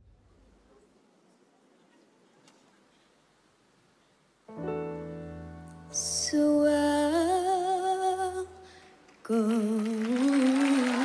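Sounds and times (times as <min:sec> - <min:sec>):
soft piano chord: 0:04.5 - 0:06.4
girl singing a slow ballad: 0:05.8 - 0:11.0.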